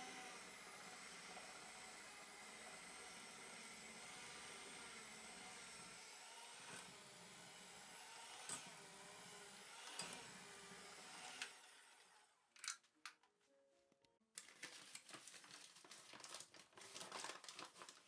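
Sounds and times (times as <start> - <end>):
hand mixer motor whine: 0.0 - 12.3.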